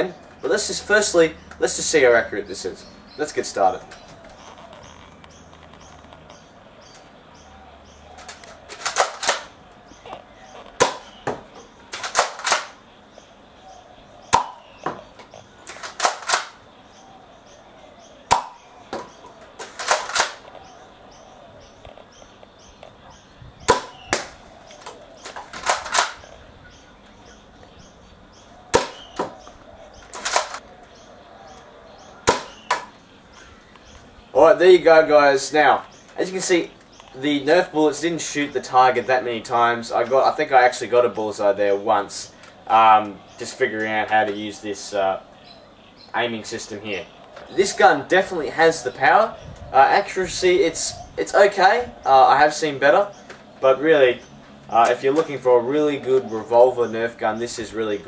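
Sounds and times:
toy blaster firing: 8.7 - 9.5, 11.9 - 12.8.

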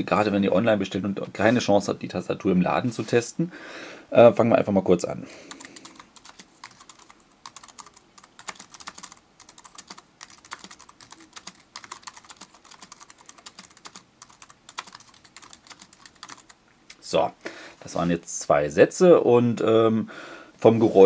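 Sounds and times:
keyboard typing clicks: 5.5 - 16.6.

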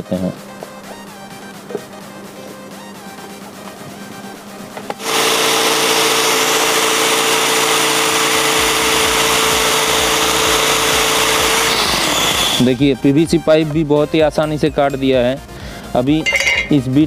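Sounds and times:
saw blade cutting plastic pipe: 5.0 - 12.7
cordless drill motor: 5.0 - 12.8.

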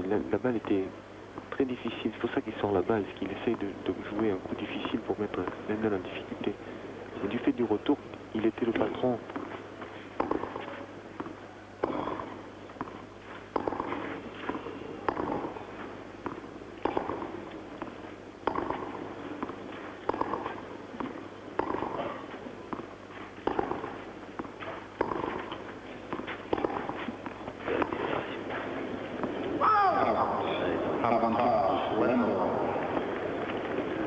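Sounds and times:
racket hitting tennis ball: 10.2 - 10.8, 11.8 - 29.5.

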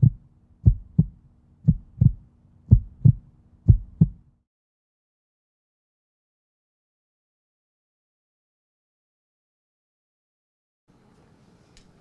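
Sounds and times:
heartbeat lub-dub: 0.0 - 4.2
faint low hum: 0.0 - 4.4.

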